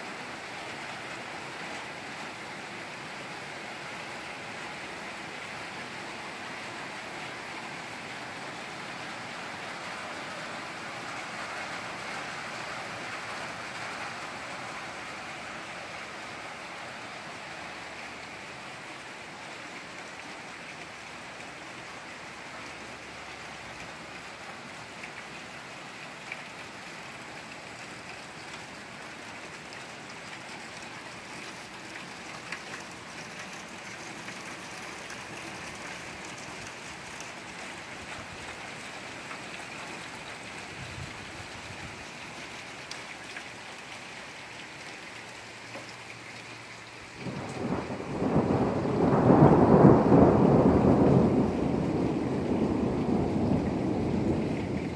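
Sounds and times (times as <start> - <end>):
steady rain falling: 0.0 - 54.9
thunder rumbling: 47.2 - 54.9.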